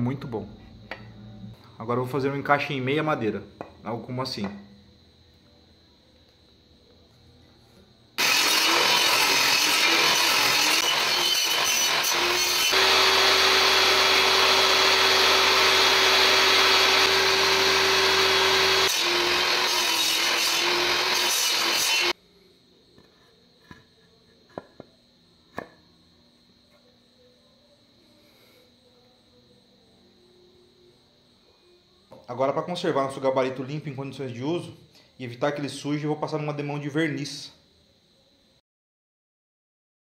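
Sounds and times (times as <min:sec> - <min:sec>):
table saw cutting wood: 0:08.2 - 0:22.2.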